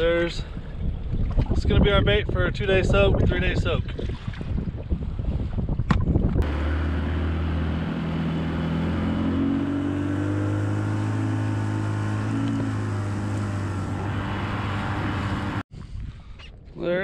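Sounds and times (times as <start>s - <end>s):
wind and water rushing: 0.0s - 15.6s
outboard motor running: 6.4s - 15.6s.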